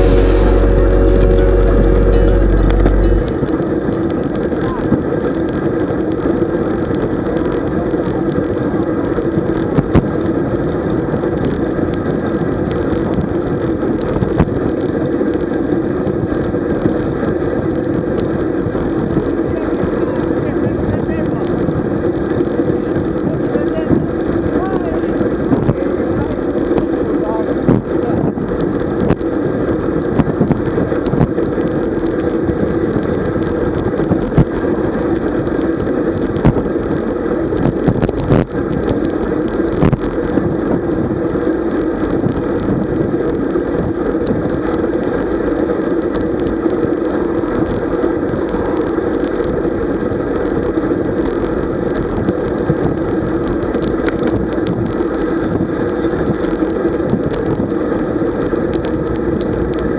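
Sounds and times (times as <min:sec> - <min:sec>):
wind rushing over microphone: 0:03.2 - 0:59.9.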